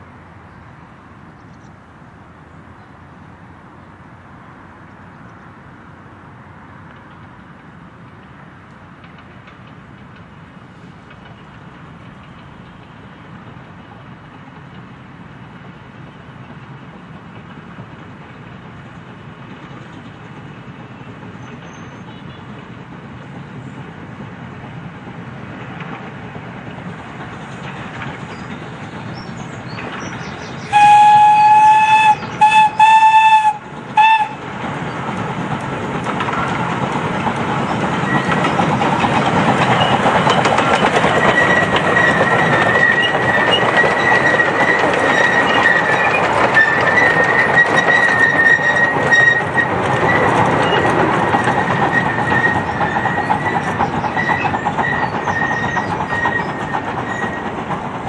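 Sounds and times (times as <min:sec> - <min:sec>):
wheels clattering on rail: 0:04.8 - 0:58.0
miniature steam locomotive running: 0:06.8 - 0:58.0
steam whistle blasts: 0:30.7 - 0:34.4
thin high squeal: 0:41.2 - 0:50.9.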